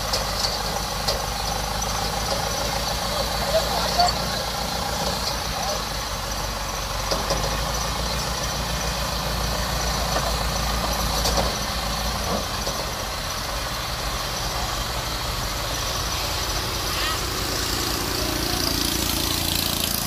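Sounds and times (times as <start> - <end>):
small engine running steadily: 0.0 - 20.0.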